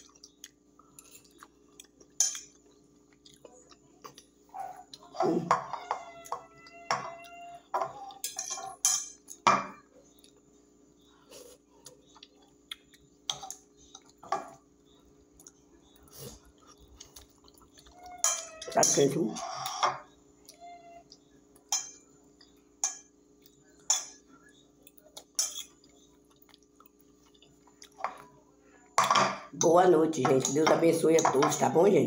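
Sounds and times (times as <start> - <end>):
chewing: 0.0 - 5.2, 10.0 - 18.7, 23.4 - 28.4
fork clinking on glass plate: 6.8 - 9.2.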